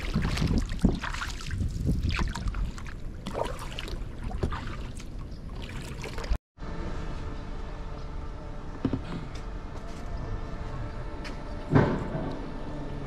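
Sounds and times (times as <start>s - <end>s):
wind rumbling on microphone: 0.0s - 5.5s
paddle strokes splashing in water: 0.0s - 6.4s.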